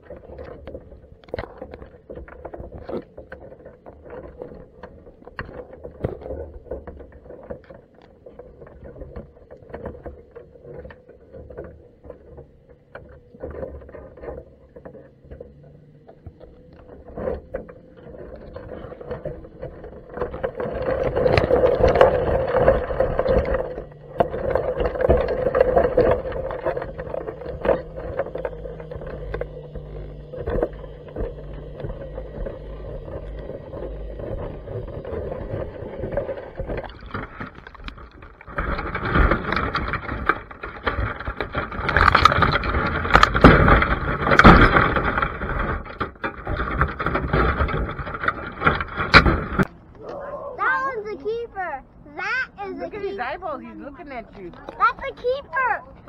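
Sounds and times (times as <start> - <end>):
underwater clicks and knocks: 0.0 - 50.2
steady low hum: 0.0 - 56.0
rushing churning water: 18.0 - 50.9.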